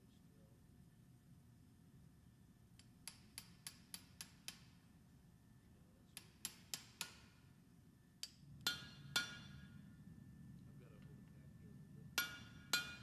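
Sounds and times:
hammer tapping on metal: 2.8 - 4.8, 6.1 - 7.4, 8.2 - 9.8, 12.1 - 13.0.

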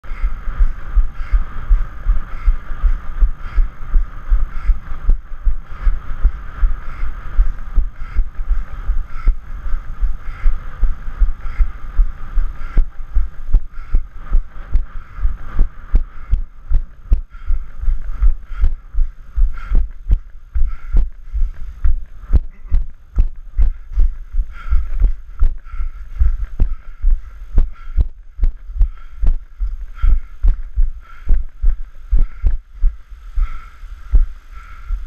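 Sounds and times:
running footsteps thumping: 15.6 - 33.0.

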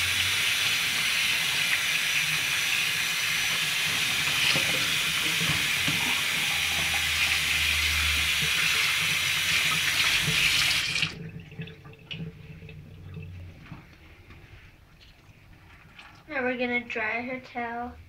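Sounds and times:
kitchen tap running: 0.0 - 13.8
water splashing: 3.4 - 16.3.

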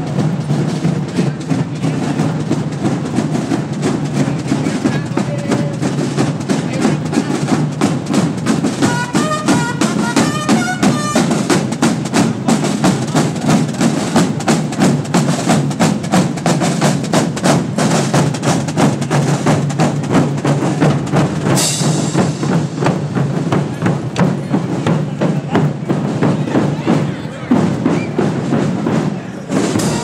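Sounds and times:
marching band playing: 0.0 - 30.0
snare and bass drums beating: 0.0 - 30.0
brass phrase: 8.8 - 11.6, 29.7 - 30.0.

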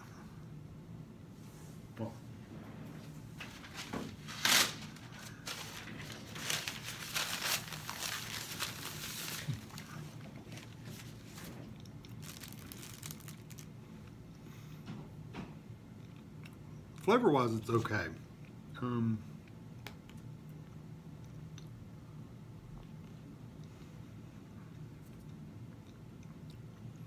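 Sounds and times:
paper napkin crumpling: 3.4 - 13.7.

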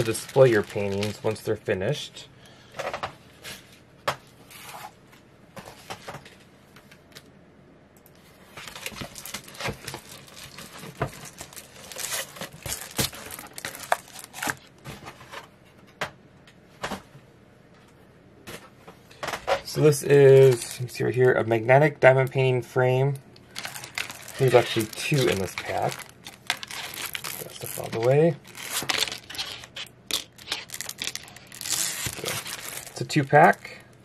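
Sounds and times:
packaging rustling and crinkling: 0.0 - 1.6, 8.5 - 15.4, 19.7 - 20.8, 23.4 - 33.9.

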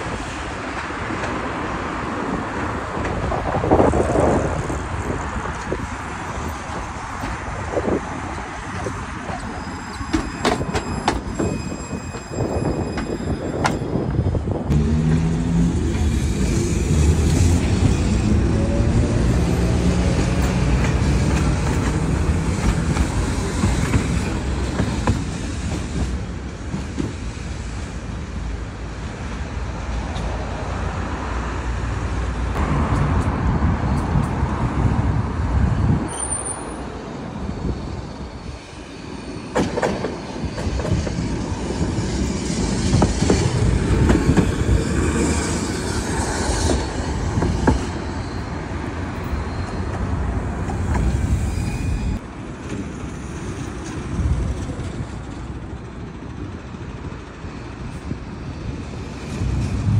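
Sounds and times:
tram wheels rumbling on rail: 0.0 - 59.9
high wheel squeal: 8.8 - 14.5, 36.1 - 52.2.

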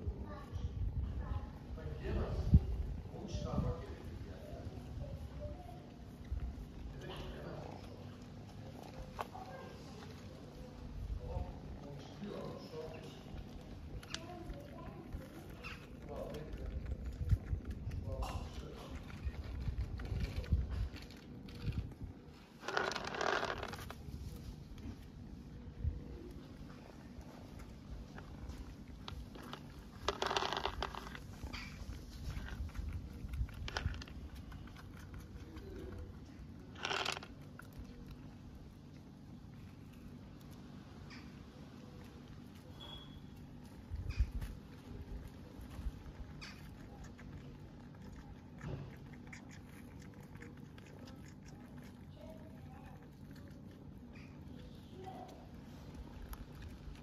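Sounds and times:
noisy rustling: 0.0 - 57.0
kittens suckling clicks and taps: 13.0 - 57.0.

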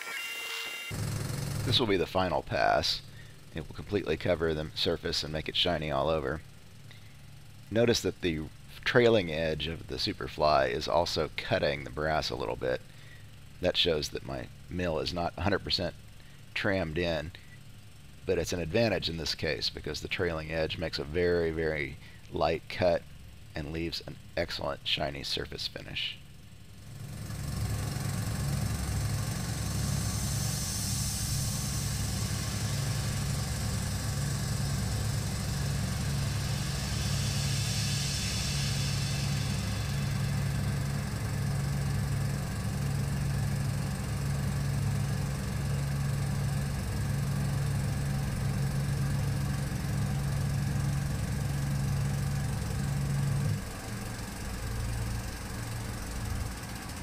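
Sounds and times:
milling machine hum and hiss: 0.0 - 5.6, 26.8 - 57.0.

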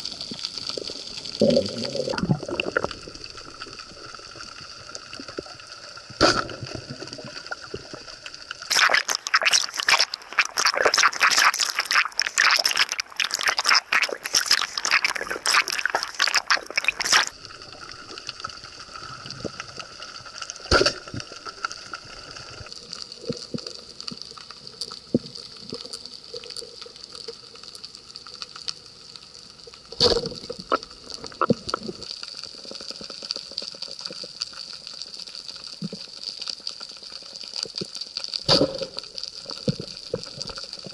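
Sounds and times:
underwater crackling clicks: 6.2 - 17.4, 29.8 - 40.9.

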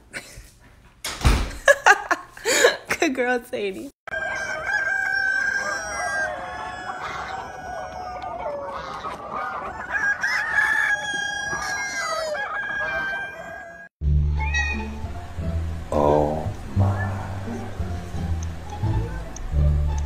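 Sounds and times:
chickens clucking and crowing: 4.1 - 15.4.

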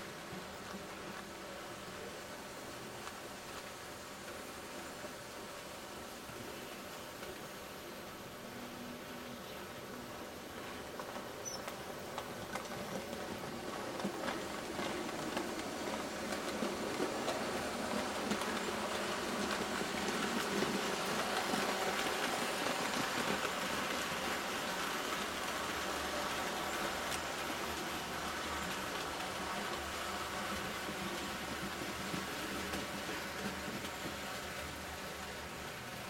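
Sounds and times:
model train wheels clicking on rails: 0.0 - 36.0.

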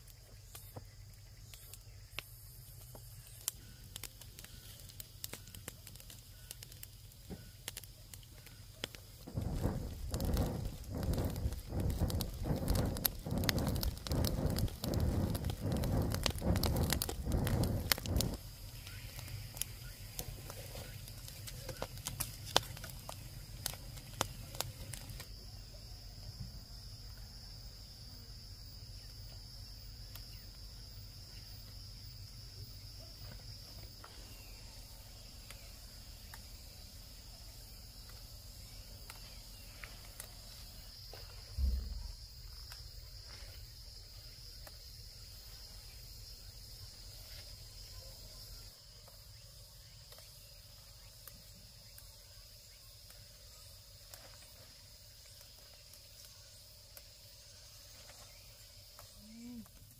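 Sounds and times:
crackling and rustling: 0.0 - 25.4, 32.4 - 59.9
high insect drone: 0.0 - 59.9
dull thump: 9.2 - 18.4, 41.4 - 42.6.

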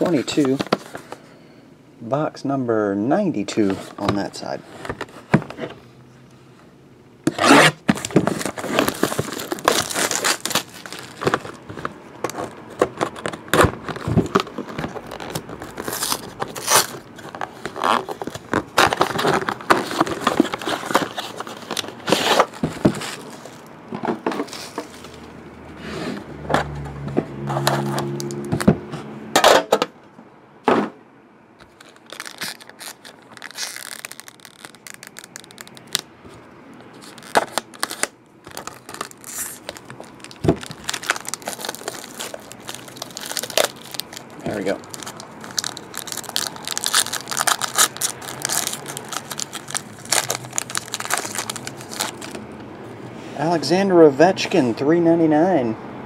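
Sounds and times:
foil pack rustling: 7.3 - 23.7, 31.6 - 36.1, 36.9 - 52.4
plastic wrap tearing and crinkling: 7.3 - 23.7, 31.6 - 36.1, 36.9 - 52.4.

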